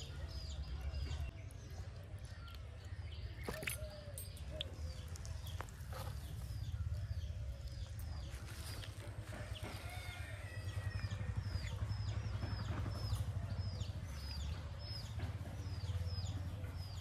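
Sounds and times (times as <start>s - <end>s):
steady low rumble: 4.2s - 17.0s.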